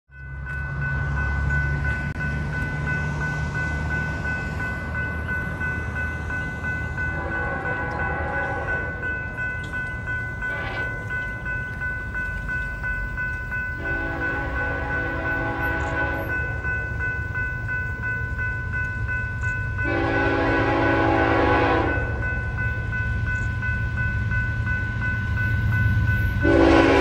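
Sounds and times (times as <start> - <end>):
crossing bell ringing: 0.1 - 27.0
freight train rumble: 0.1 - 27.0
distant locomotive horn: 7.1 - 9.1, 13.8 - 16.6, 19.8 - 22.2, 26.4 - 27.0.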